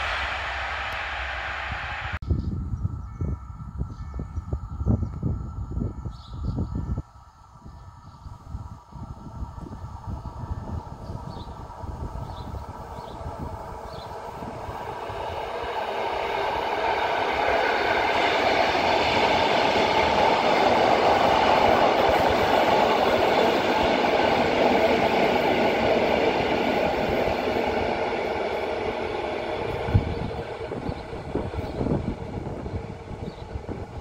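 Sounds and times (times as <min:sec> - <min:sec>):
train passing by: 0:00.0 - 0:34.0.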